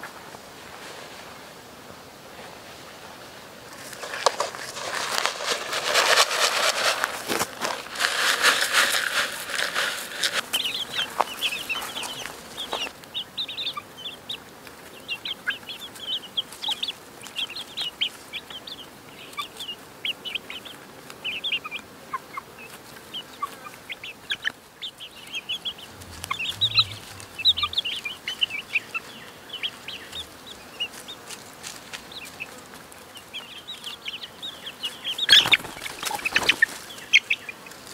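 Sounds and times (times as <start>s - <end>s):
rustling and scratching: 3.7s - 12.9s, 25.7s - 28.4s, 35.2s - 37.9s
chicks peeping and clucking: 3.8s - 37.9s.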